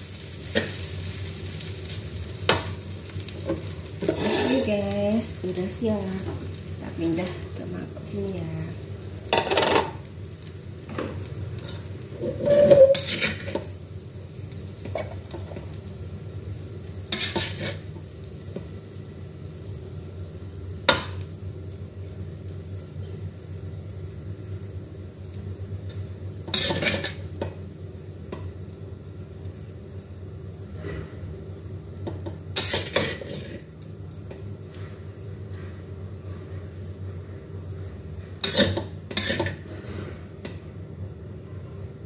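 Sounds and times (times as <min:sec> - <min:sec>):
light sizzling: 0:00.0 - 0:42.0
steady low hum: 0:00.0 - 0:42.0
metal spatula scraping wok: 0:03.5 - 0:04.9, 0:11.6 - 0:13.6, 0:17.1 - 0:17.9, 0:26.5 - 0:27.2, 0:32.6 - 0:33.6, 0:38.4 - 0:40.2.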